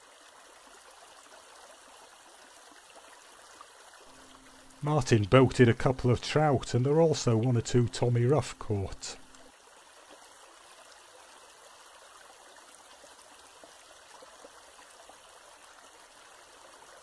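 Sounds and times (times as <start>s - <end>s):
running water rushing: 4.1s - 9.5s.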